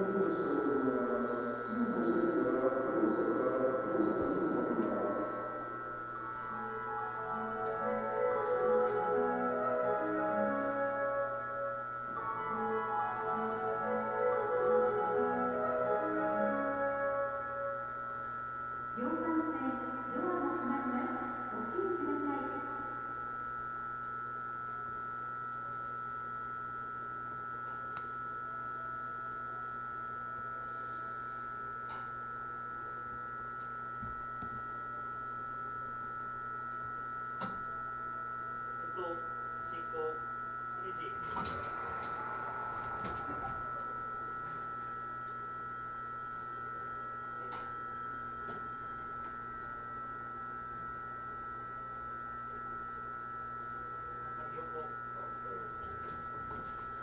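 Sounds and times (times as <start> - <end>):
electric train hum: 0.0 - 57.0
brief rush of noise: 41.2 - 44.0.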